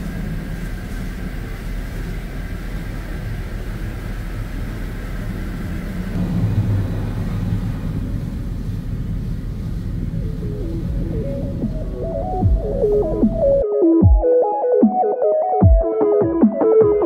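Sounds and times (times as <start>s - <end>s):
car wash machinery rumble: 0.0s - 13.6s.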